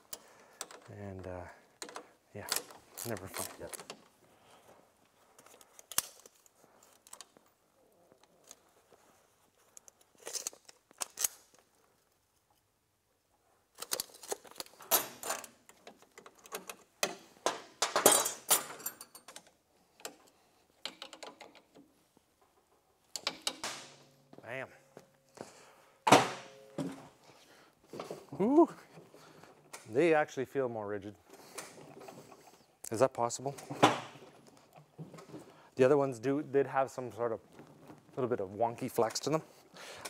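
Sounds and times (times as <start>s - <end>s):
metal tool clinks and rattles: 17.8s - 20.2s.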